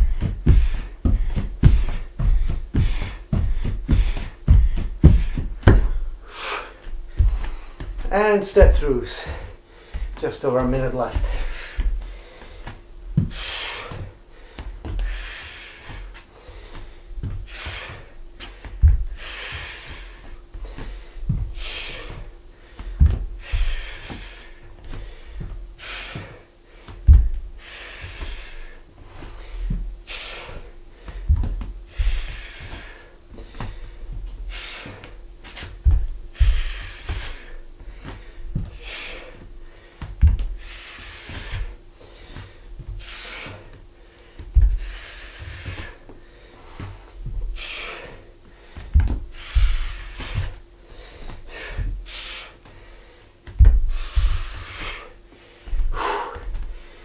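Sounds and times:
bare feet thudding on wooden floor: 0:00.0 - 0:52.0, 0:53.4 - 0:56.9
man breathing hard: 0:00.0 - 0:57.0.

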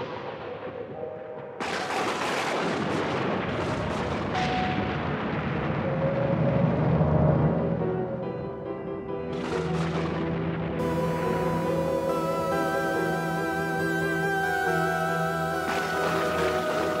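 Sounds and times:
eerie music with low tones: 0:04.2 - 0:17.0.

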